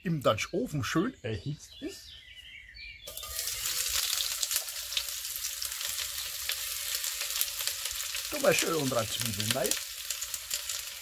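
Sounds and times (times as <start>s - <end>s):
onions sizzling in hot oil: 3.1s - 11.0s.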